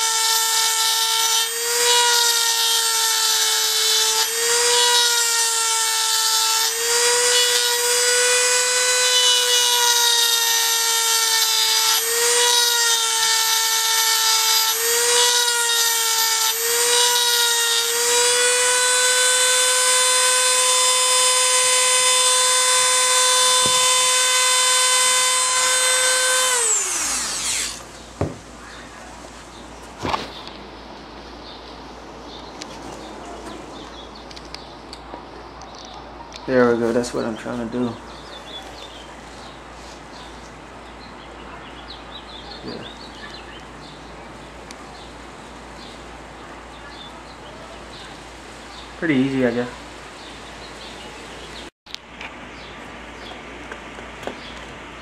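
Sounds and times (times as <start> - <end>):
rotary tool grinding metal: 0.0 - 27.9.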